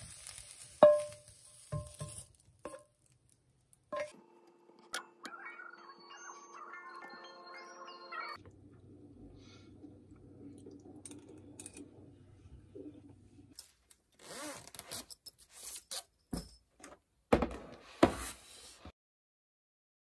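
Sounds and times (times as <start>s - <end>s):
scraping and rustling on desk: 17.6s - 18.9s.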